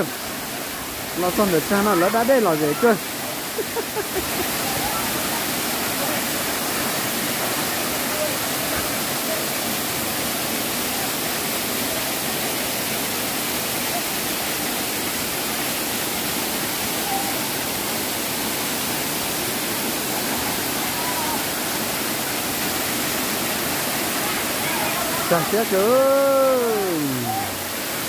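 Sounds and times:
waterfall pouring onto rock: 0:00.0 - 0:28.0.

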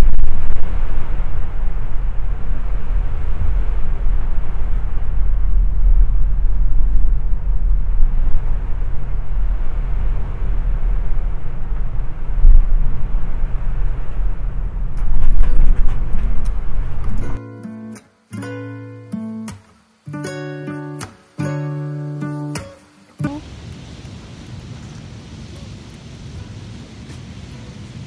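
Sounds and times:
wind: 0:00.0 - 0:28.0
rushing water: 0:18.2 - 0:28.0.

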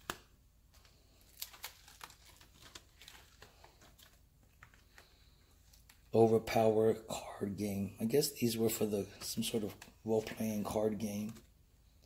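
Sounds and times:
plastic binder pages turning: 0:00.0 - 0:06.2, 0:09.1 - 0:11.6.

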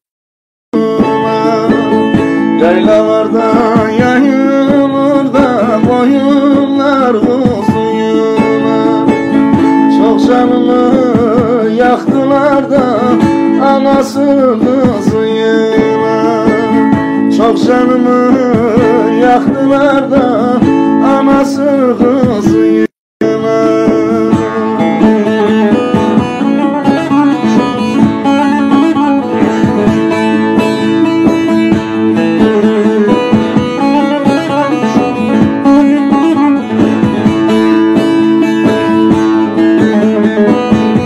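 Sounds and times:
long-necked lute folk melody: 0:00.8 - 0:41.0.

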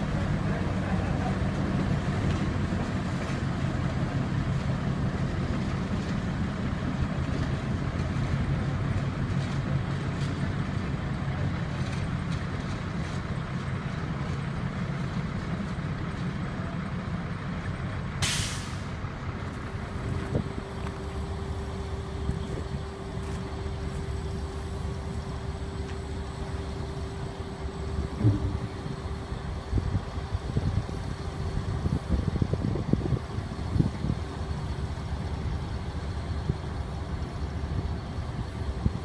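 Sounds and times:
diesel locomotive idling: 0:00.0 - 0:39.0
air brake hiss: 0:18.2 - 0:18.9
steady hum: 0:19.7 - 0:31.8.

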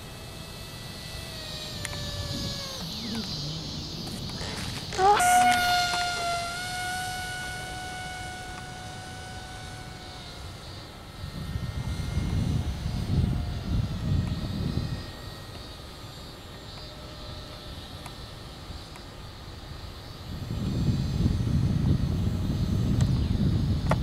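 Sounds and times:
low rumbling: 0:00.0 - 0:15.2
rc plane motor whining: 0:00.0 - 0:24.0.

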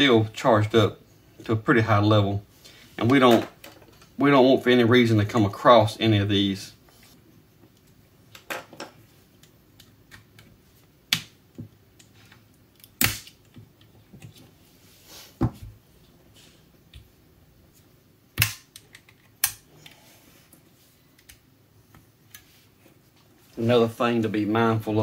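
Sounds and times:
sharp clicks and snaps: 0:18.4 - 0:19.6.

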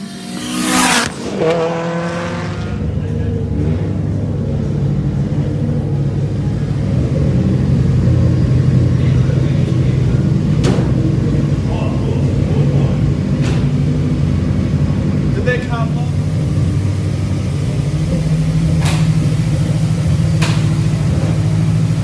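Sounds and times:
race car engine drone: 0:00.0 - 0:22.0.

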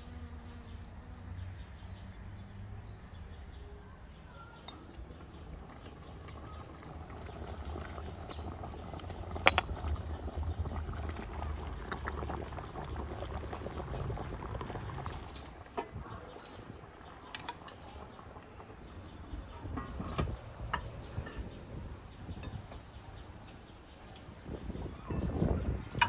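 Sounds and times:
metal ladle clinking: 0:09.5 - 0:09.8.

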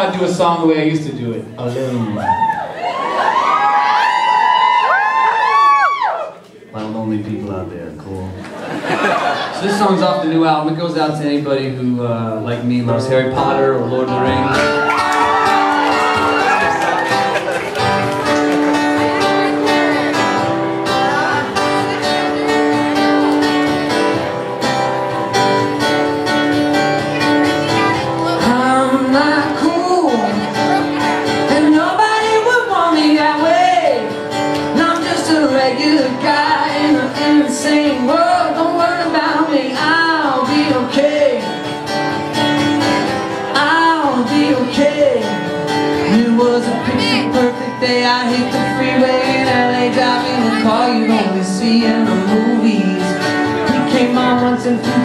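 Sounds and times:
acoustic guitar: 0:00.0 - 0:04.5, 0:06.2 - 0:55.0
man singing: 0:11.5 - 0:14.8, 0:28.2 - 0:41.6, 0:43.5 - 0:55.0.

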